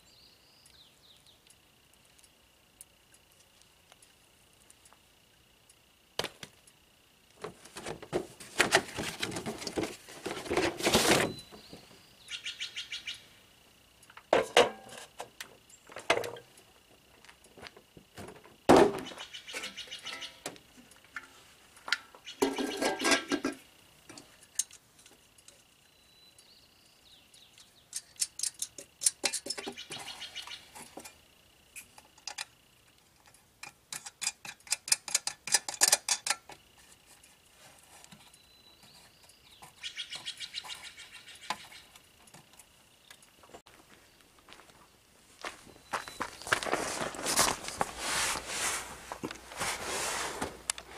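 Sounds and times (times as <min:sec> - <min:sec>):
metal clank: 0:14.4 - 0:15.0, 0:21.9 - 0:23.6
faint steady high tone: 0:25.8 - 0:27.8
hands scraping and rustling: 0:46.4 - 0:50.9.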